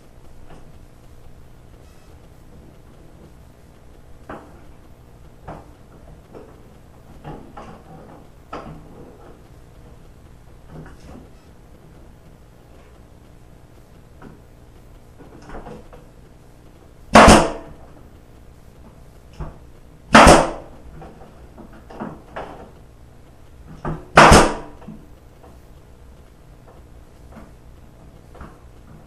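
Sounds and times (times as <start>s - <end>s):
nail gun firing: 17.1s - 17.7s, 20.1s - 20.7s, 24.2s - 24.8s.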